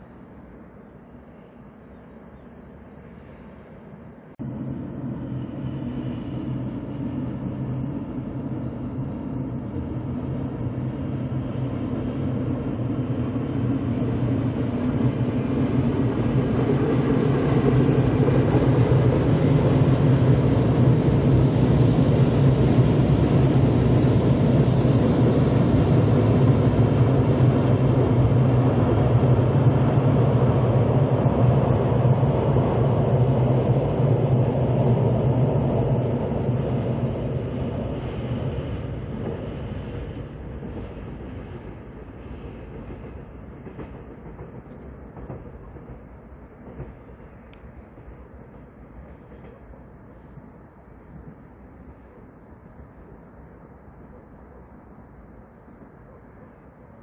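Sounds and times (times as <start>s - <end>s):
locomotive hum: 0.0s - 57.0s
train wheels rumbling on rail: 0.0s - 57.0s.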